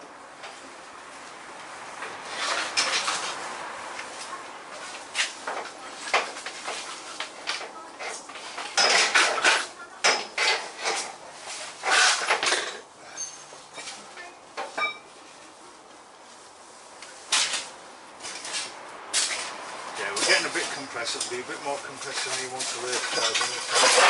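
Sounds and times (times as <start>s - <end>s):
metal tools clanking: 8.6s - 11.2s, 22.0s - 24.0s.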